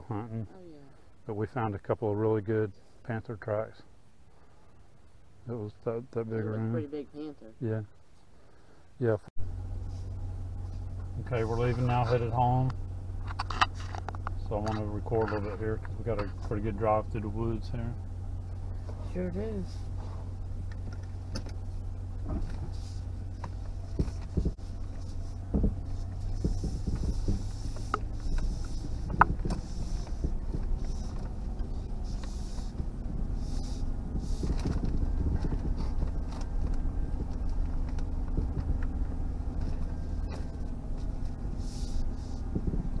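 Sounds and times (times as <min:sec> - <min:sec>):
vehicle engine and road hum: 0:00.0 - 0:43.0
knocks and rattles: 0:23.3 - 0:33.1, 0:34.0 - 0:41.3.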